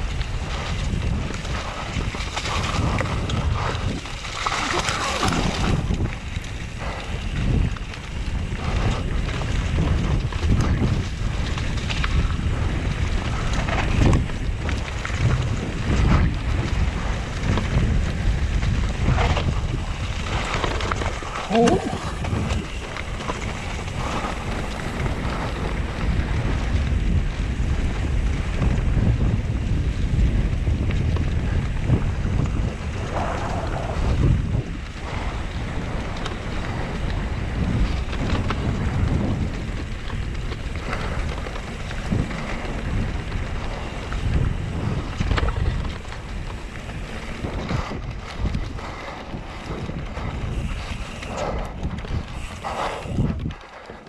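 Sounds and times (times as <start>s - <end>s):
bike tyres rolling on dirt: 0.0s - 54.0s
wind buffeting microphone: 0.0s - 54.0s.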